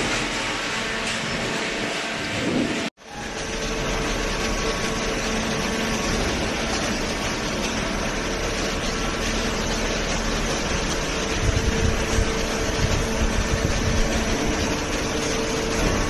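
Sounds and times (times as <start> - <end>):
baler machine running with hum: 0.0 - 16.0.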